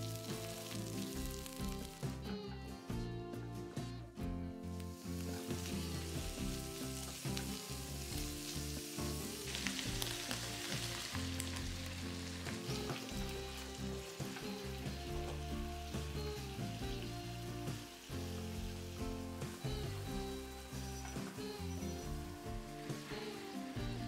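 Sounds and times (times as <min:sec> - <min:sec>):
food sizzling in a frying pan: 0:00.0 - 0:02.3, 0:04.7 - 0:24.0
water hitting hot pan: 0:04.9 - 0:15.5.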